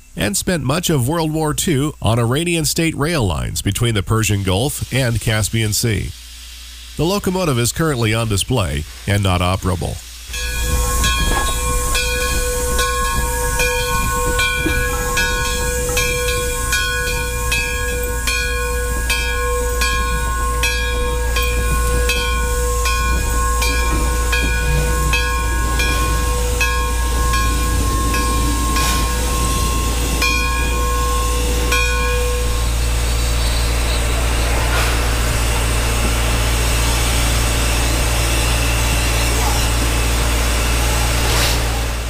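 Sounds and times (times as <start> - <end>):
steam hissing: 0.0 - 42.0
steam locomotive exhaust chuffing: 0.0 - 42.0
steady low tone: 9.3 - 42.0.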